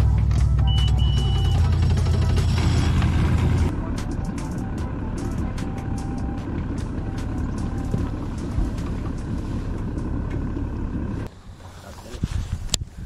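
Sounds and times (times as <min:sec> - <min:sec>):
outboard motor droning: 0:00.0 - 0:12.7
wind buffeting microphone: 0:12.0 - 0:13.0.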